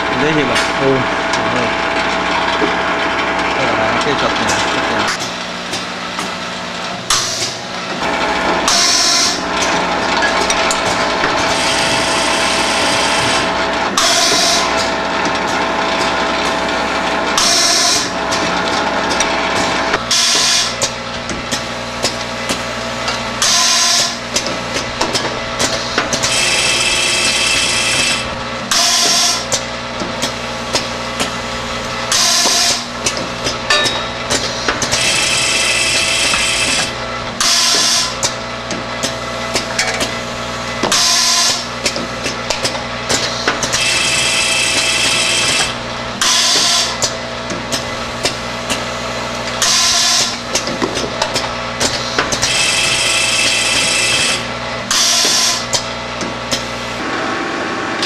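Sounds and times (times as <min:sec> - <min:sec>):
vibratory feeder humming and rattling: 0:00.0 - 0:58.0
pneumatic cylinders clacking: 0:00.2 - 0:57.2.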